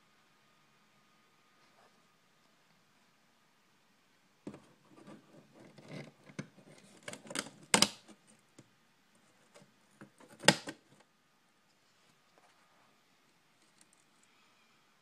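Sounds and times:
camera brushing and scraping: 4.5 - 7.2.

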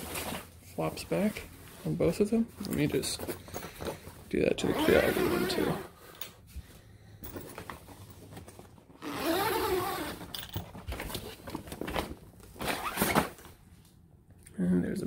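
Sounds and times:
zipper pulled open: 4.6 - 6.0, 9.0 - 10.4, 12.6 - 13.3.

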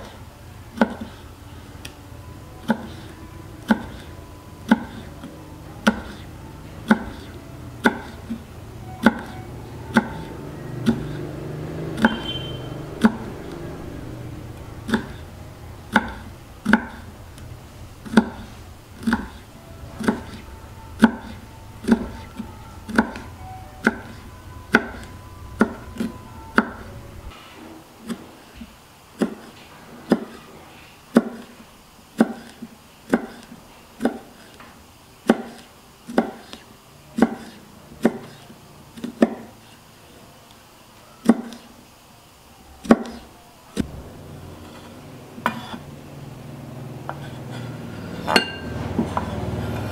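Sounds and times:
low hum: 1.3 - 27.4, 43.8 - 49.9.

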